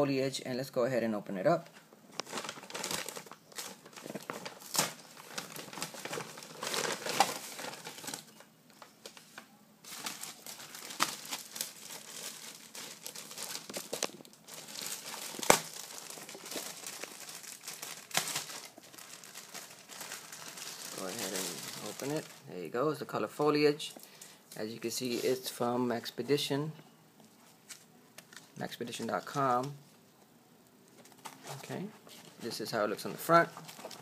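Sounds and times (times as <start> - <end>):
plastic packaging crinkling: 1.7 - 22.6, 31.0 - 34.0.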